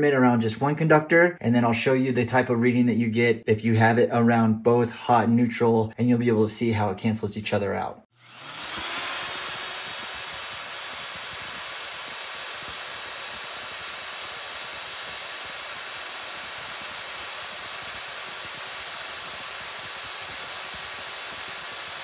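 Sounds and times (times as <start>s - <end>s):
electric motor running: 8.2s - 22.0s.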